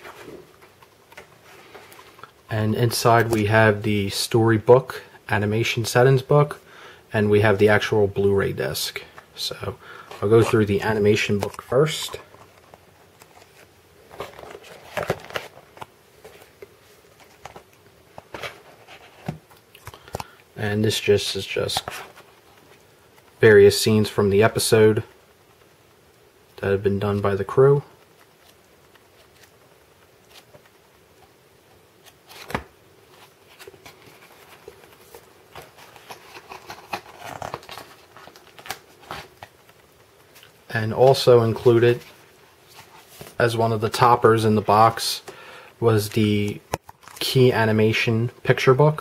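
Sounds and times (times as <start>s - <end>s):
paper rustling: 9.0s - 20.3s, 28.0s - 30.8s, 32.0s - 44.8s.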